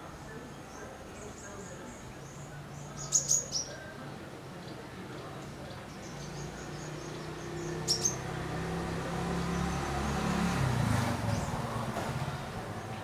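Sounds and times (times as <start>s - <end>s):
high bird chirps: 2.2s - 3.8s, 5.8s - 8.3s
vehicle engine humming: 6.1s - 13.0s.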